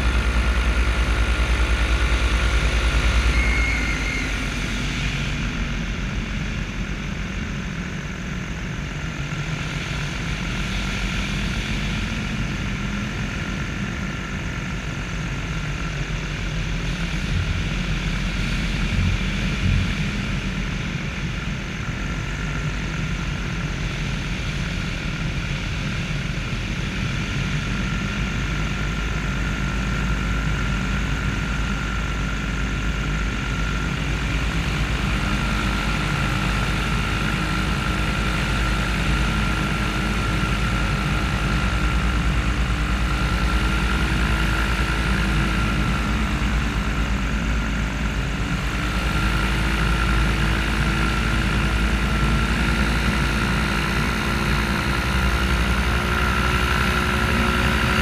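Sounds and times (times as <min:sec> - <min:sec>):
paramotor engine droning: 0:00.0 - 0:58.0
thin high whine: 0:02.7 - 0:05.8.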